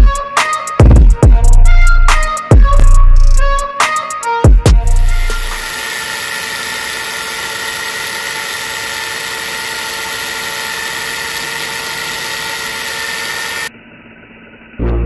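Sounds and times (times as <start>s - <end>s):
angle grinder cutting iron: 4.9s - 13.7s.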